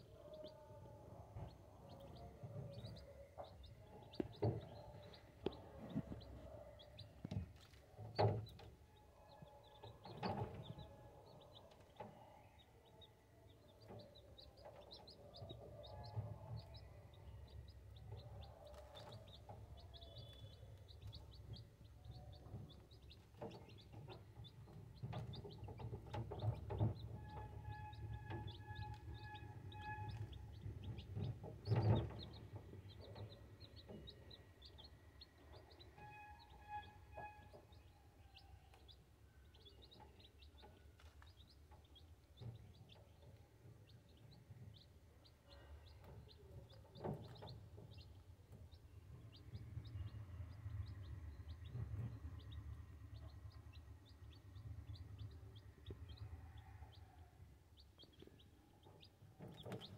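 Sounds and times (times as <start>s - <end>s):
chicks peeping: 0.0s - 59.9s
low steady rumble: 48.1s - 56.5s.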